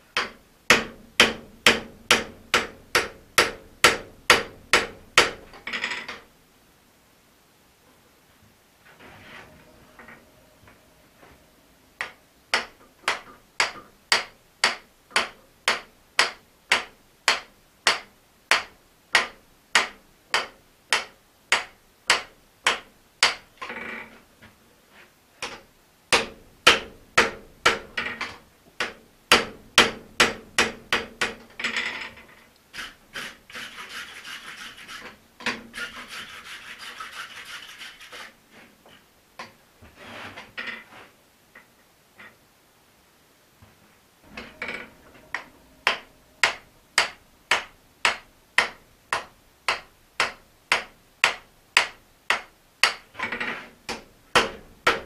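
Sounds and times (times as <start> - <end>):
metal scraping: 8.9 - 12.2, 44.2 - 49.1
hammer striking metal on anvil: 44.3 - 52.4.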